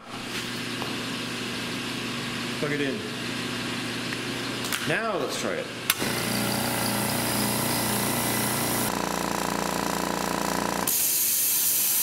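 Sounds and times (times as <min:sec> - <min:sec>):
air compressor running: 0:05.8 - 0:12.0
hiss of escaping air: 0:10.9 - 0:12.0.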